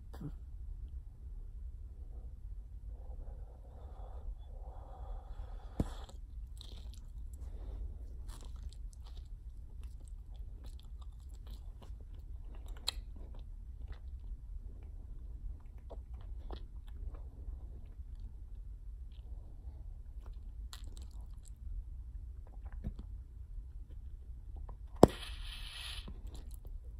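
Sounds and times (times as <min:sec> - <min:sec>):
gum chewing clicks: 0:05.8 - 0:07.4, 0:08.1 - 0:14.4, 0:20.2 - 0:21.6.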